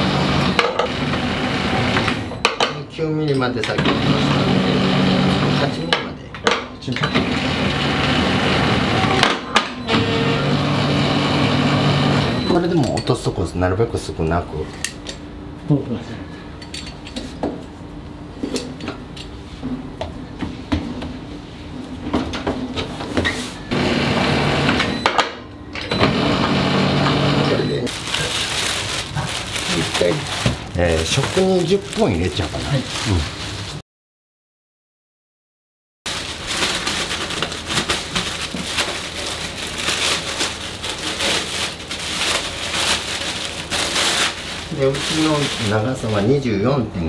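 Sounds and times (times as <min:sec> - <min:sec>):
plastic bag crinkling: 0:27.9 - 0:33.8, 0:36.1 - 0:46.4.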